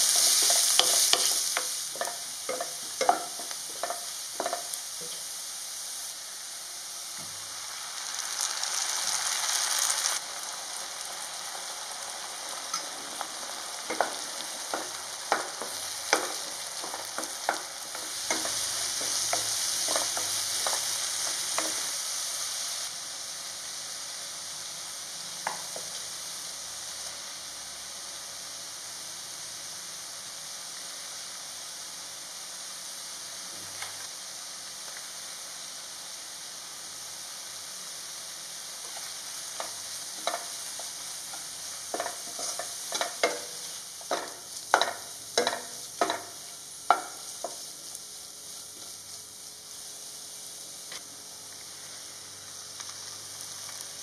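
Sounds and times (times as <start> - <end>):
onions frying in oil: 0.0 - 54.0
spatula scraping a pan: 41.9 - 46.3.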